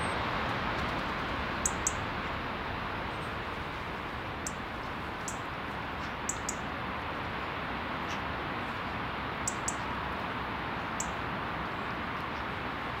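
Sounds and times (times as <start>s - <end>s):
outdoor background noise: 0.0s - 13.0s
small birds chirping: 1.6s - 2.1s, 3.1s - 6.7s, 9.4s - 9.9s, 10.9s - 12.6s.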